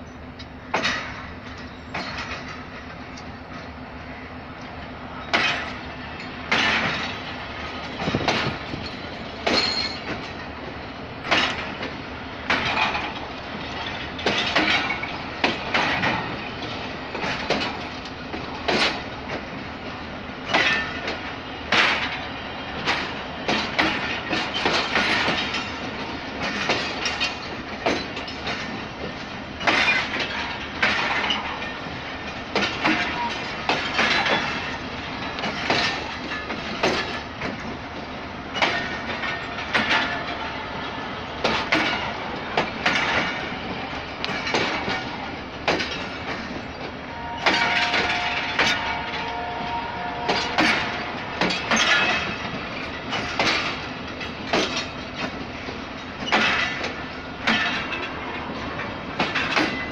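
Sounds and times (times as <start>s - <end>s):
train rumble: 0.0s - 59.9s
wheels knocking over rail joints: 22.8s - 31.8s, 41.4s - 43.6s, 56.0s - 59.9s.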